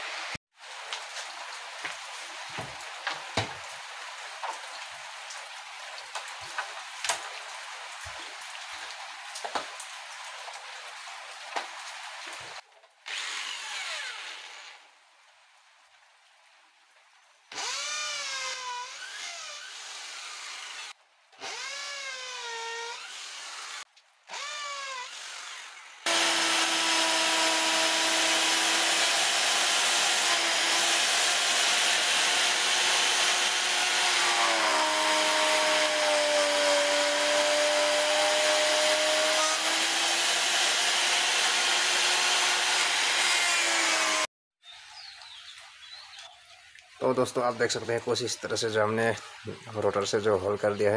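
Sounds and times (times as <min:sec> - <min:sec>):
electric drill boring into wood: 0:13.1 - 0:14.8, 0:17.5 - 0:44.3
router whining while cutting wood: 0:13.1 - 0:14.8, 0:17.6 - 0:44.3.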